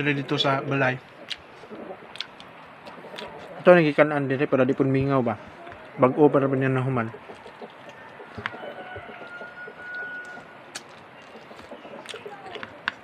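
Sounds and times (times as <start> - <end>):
chicken calls: 1.1 - 3.7, 5.2 - 13.0
faint bird calls: 5.4 - 12.9.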